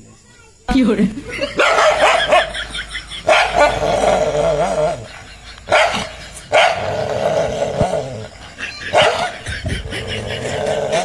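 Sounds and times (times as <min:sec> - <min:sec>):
dog barking: 0:01.5 - 0:02.6, 0:03.2 - 0:03.8, 0:05.7 - 0:06.9, 0:08.9 - 0:09.5.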